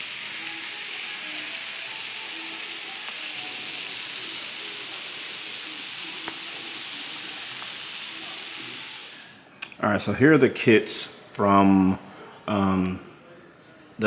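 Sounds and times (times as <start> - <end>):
seafood sizzling on salt block: 0.0 - 9.4.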